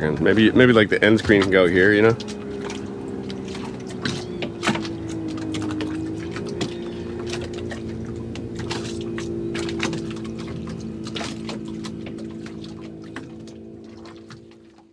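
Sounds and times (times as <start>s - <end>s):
motor hum: 0.0s - 14.9s
water splashing against hull: 0.0s - 14.9s.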